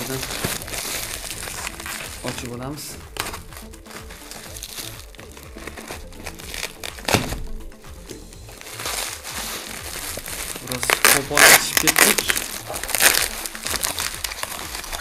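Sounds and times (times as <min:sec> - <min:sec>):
plastic film crinkling: 0:00.0 - 0:07.6, 0:08.4 - 0:15.0
cardboard rustling: 0:00.0 - 0:15.0
quiet background music: 0:00.0 - 0:15.0.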